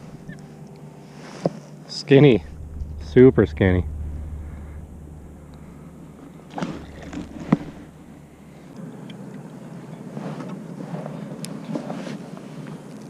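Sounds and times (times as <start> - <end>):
low even rustling: 2.4 - 8.8.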